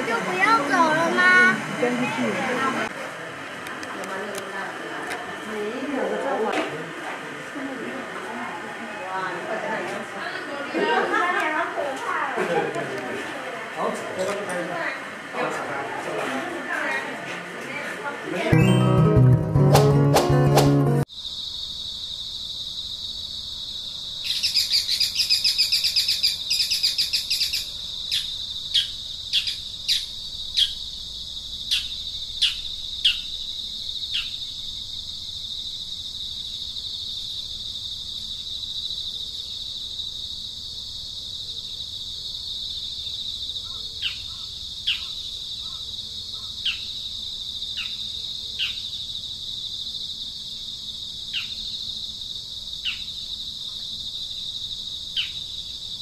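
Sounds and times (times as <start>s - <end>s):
insects droning: 0.0s - 18.6s, 21.0s - 56.0s
bird chirping: 24.3s - 30.8s.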